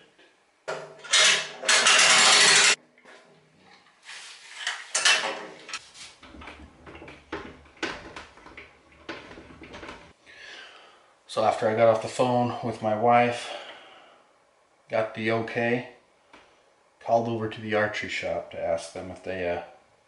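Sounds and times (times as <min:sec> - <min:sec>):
loud scraping rattle of metal parts: 0:01.0 - 0:02.8, 0:04.5 - 0:10.2
knocks and clicks: 0:06.2 - 0:10.2.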